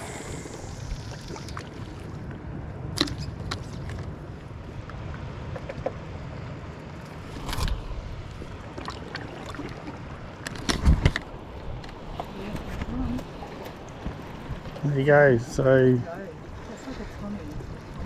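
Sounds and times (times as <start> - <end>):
wind rumble on microphone: 0.0 - 18.0.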